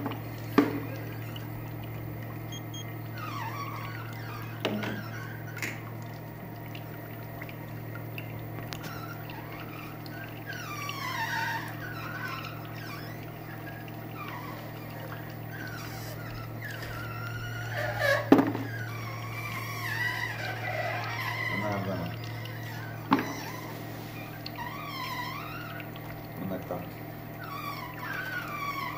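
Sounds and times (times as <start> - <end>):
oil press humming: 0.0 - 28.9.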